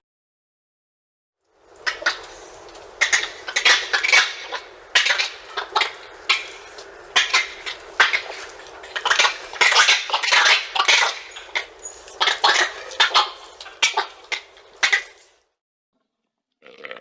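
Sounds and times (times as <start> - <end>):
monkey harsh calls: 3.0 - 15.2.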